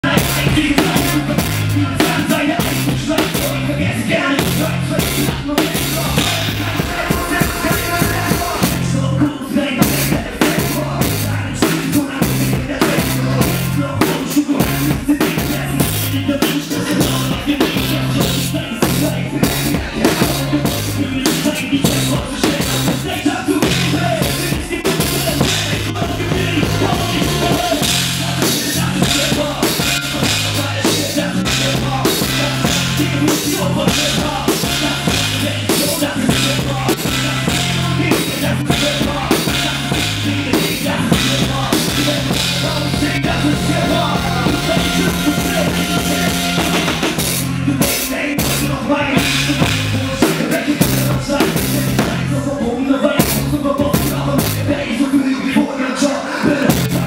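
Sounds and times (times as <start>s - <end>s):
low bass notes: 0.0s - 52.6s, 53.2s - 54.9s, 56.7s - 57.0s
drum kit groove: 0.0s - 54.9s, 56.5s - 57.0s
live band playing: 0.0s - 57.0s.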